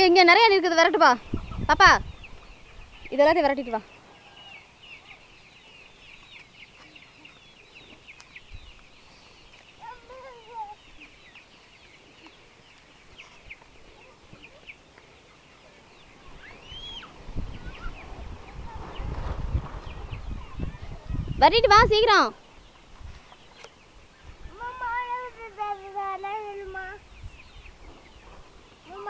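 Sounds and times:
chickens chirping: 0.1 - 29.0
high rising and falling call: 16.4 - 18.1.

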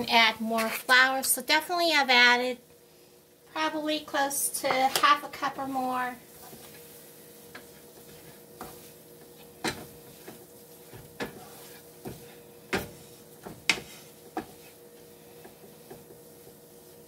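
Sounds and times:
faint steady hum: 0.0 - 17.0
wooden spoon stirring roux: 4.9 - 17.0.

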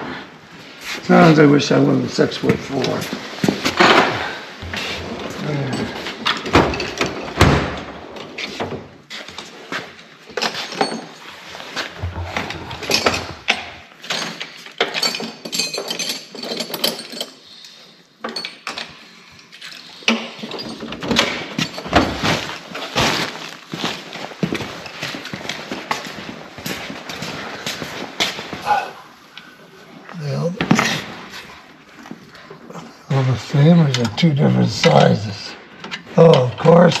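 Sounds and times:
hand tools knocking and clattering: 12.0 - 17.4.

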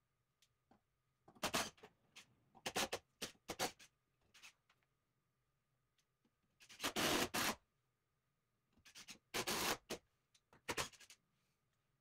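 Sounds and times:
drill driving screws into wood: 6.7 - 7.6, 9.3 - 10.0.

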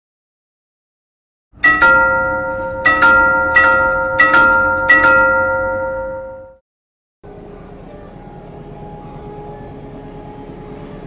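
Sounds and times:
chime bells melody: 1.6 - 6.6.

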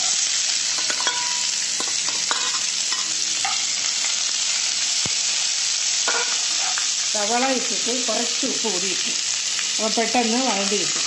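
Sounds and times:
onions sizzling in hot oil: 0.0 - 11.0
metal spoon clinking and scraping: 0.8 - 4.2, 6.0 - 7.0.

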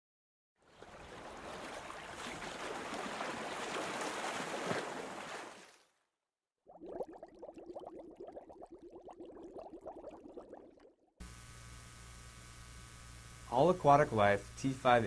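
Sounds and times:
rushing water like surf: 0.8 - 5.7.

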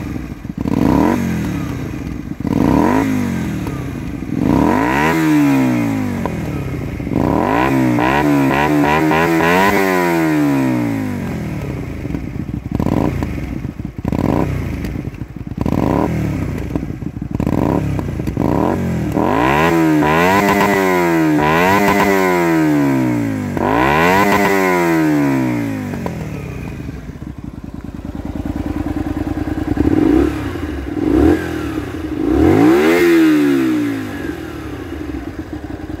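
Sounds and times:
motorcycle engine revving and idling: 0.0 - 36.0.

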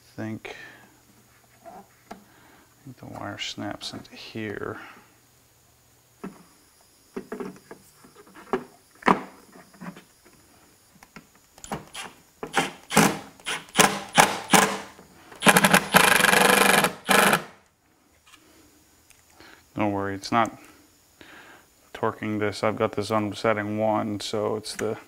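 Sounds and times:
cordless driver rattling: 15.4 - 17.5.

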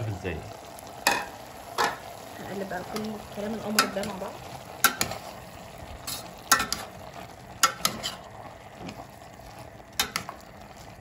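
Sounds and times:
vegetables sizzling: 0.0 - 11.0
utensil knocking and scraping pot: 2.9 - 5.4, 6.0 - 7.0, 7.6 - 9.0.

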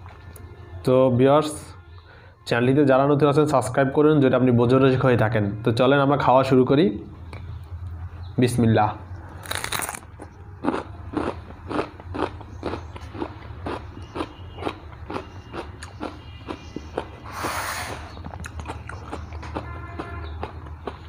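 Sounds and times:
chewing crunchy vegetables: 9.2 - 21.0.

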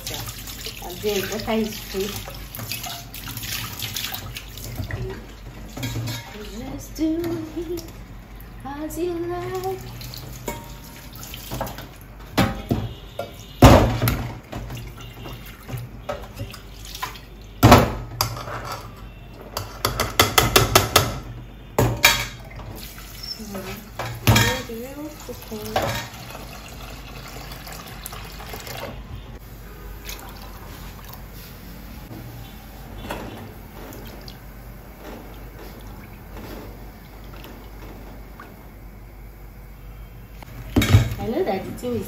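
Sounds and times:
pot clanking against sink: 4.7 - 6.6, 10.4 - 16.6, 19.6 - 22.8, 23.6 - 24.8, 25.6 - 26.3, 40.7 - 41.4
tap water running into sink: 22.5 - 29.0.

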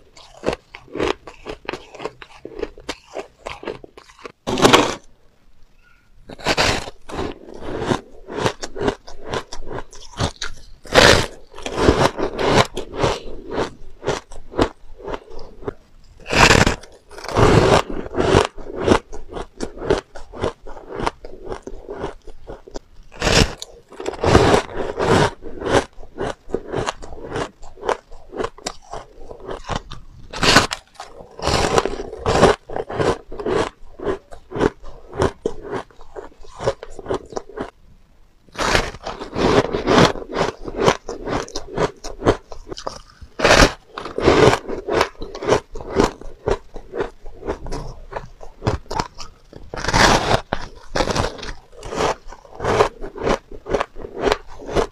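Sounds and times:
shaved ice crunching: 38.6 - 54.9.

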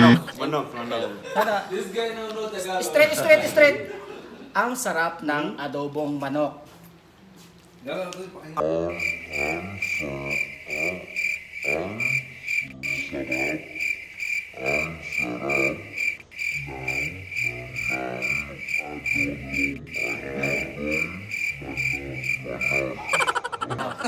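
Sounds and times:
man's voice: 0.0 - 0.4, 17.7 - 23.1.

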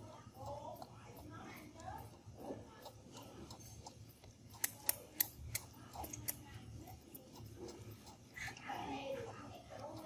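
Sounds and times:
baby monkeys suckling from bottles: 0.0 - 10.0
sharp wet clicks and smacks: 2.8 - 8.7.

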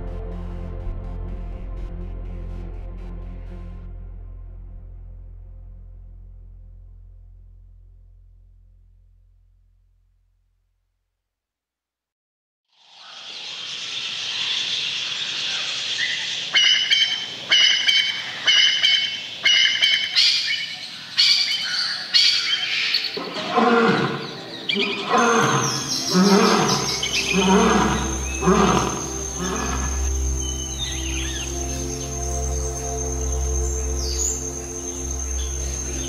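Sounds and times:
steady low drone: 0.0 - 10.0, 24.2 - 36.0
bird high call: 13.0 - 32.0.

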